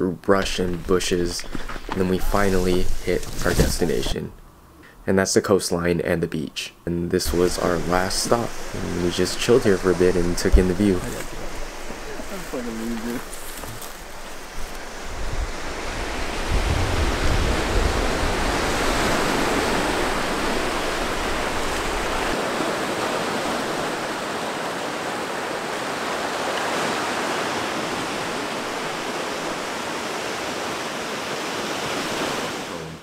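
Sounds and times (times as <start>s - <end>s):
waves washing over rocks: 7.3s - 32.9s.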